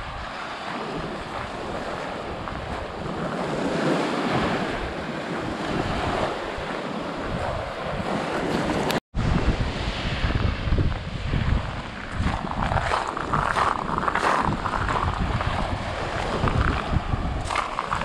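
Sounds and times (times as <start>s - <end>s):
small waves breaking on a beach: 0.0s - 18.0s
wind buffeting the microphone: 0.0s - 18.0s.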